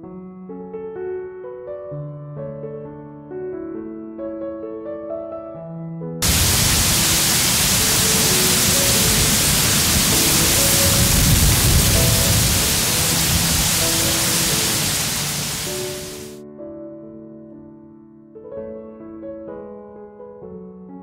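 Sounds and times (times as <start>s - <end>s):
soft piano music: 0.0s - 21.0s
rushing wind buffeting microphone: 6.2s - 16.2s.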